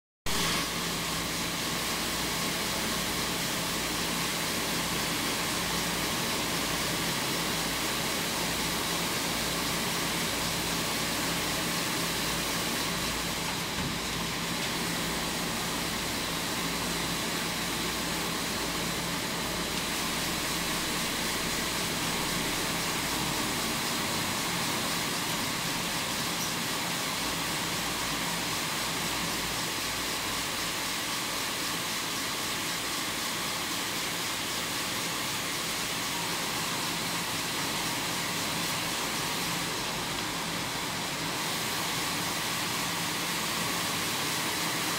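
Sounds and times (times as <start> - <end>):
knitting machinery humming: 0.3 - 30.6.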